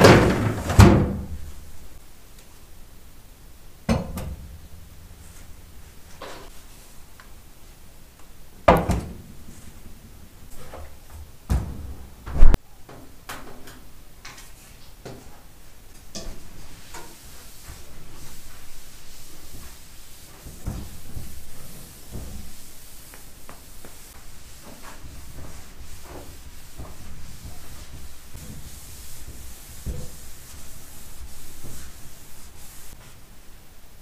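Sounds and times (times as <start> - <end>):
cloth wiping metal door: 0.0 - 1.8, 4.0 - 7.6, 15.9 - 33.3.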